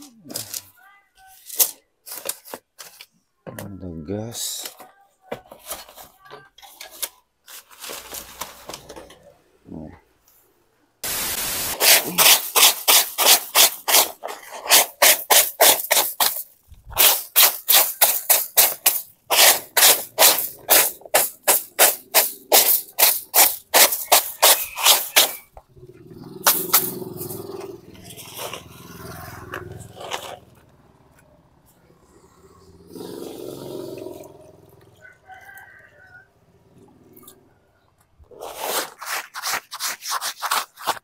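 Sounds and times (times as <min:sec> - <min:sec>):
hand broom sweeping groundsheet: 0:11.0 - 0:25.5, 0:26.4 - 0:30.7, 0:38.3 - 0:41.0.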